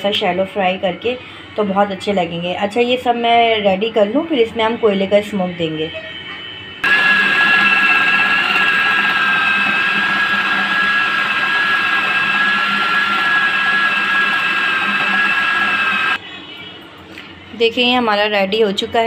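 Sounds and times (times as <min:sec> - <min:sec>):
food processor motor grinding: 0:06.8 - 0:16.2.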